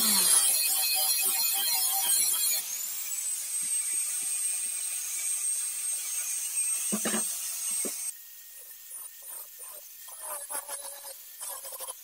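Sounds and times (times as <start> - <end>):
angle grinder whining: 0.0 - 8.1.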